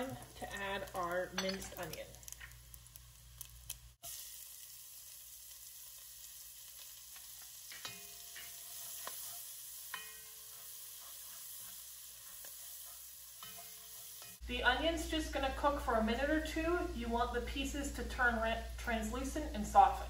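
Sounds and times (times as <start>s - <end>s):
onion sizzling in a frying pan: 0.0s - 20.0s
utensil scraping a pan: 7.4s - 14.4s.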